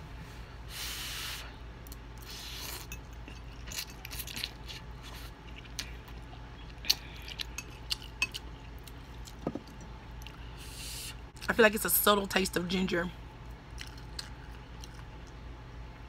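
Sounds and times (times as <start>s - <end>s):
chewing with wet lip smacks: 13.7s - 15.5s.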